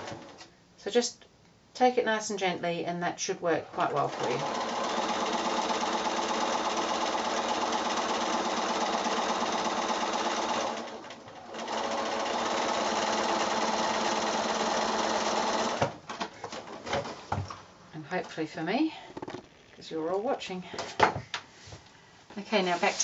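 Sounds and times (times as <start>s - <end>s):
sewing machine stitching: 3.5s - 16.0s.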